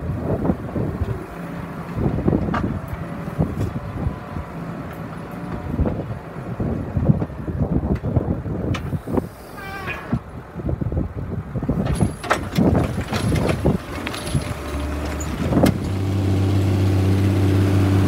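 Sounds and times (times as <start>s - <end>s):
tractor diesel engine under load: 0.0s - 18.0s
cultivator clanks and rattles: 11.8s - 16.1s.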